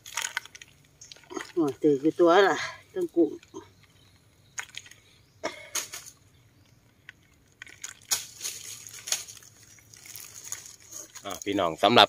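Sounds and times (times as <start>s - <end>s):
water dripping: 0.0s - 12.0s
net rustling scrapes: 7.6s - 11.3s.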